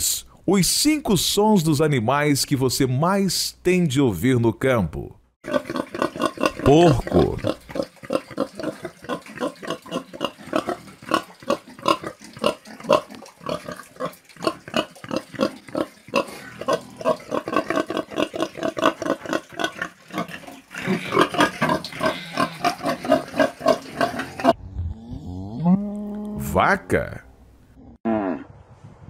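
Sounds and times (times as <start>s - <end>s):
pigs grunting: 5.4s - 26.4s.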